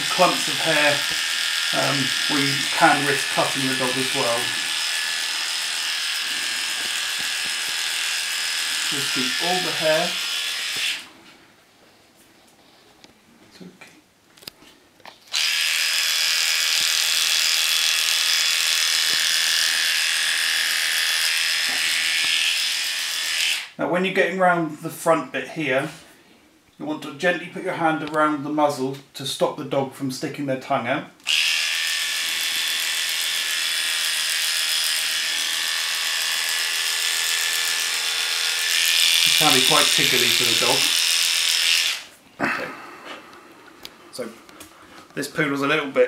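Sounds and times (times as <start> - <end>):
electric clippers buzzing: 0.0 - 11.1, 15.3 - 23.8, 31.2 - 42.2.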